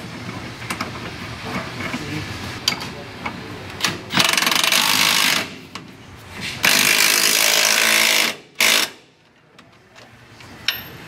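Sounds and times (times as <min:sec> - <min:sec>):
power ratchet running: 0:04.2 - 0:05.6, 0:06.6 - 0:09.0.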